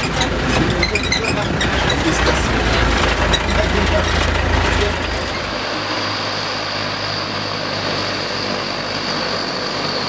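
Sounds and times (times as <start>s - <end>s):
aircraft engine drone: 0.0s - 10.0s.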